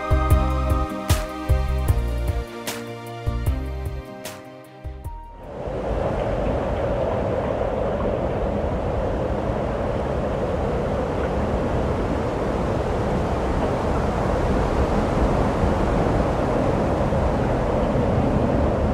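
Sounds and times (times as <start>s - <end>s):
wind: 5.1s - 18.9s
surf rushing: 5.4s - 18.9s.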